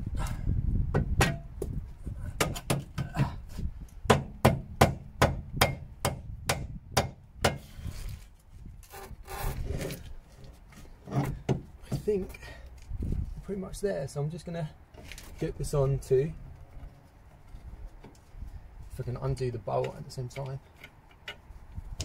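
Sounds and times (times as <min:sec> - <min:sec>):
rubbing and scraping: 0:07.6 - 0:12.2.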